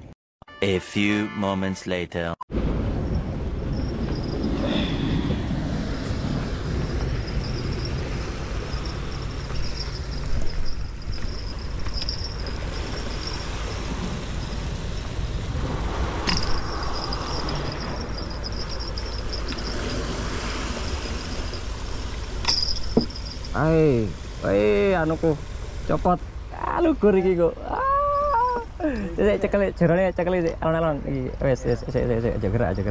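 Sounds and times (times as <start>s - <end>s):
sea surf: 2.5s - 29.6s
wind: 2.5s - 32.9s
thin high tone: 6.0s - 14.7s, 16.3s - 20.2s, 27.1s - 29.1s.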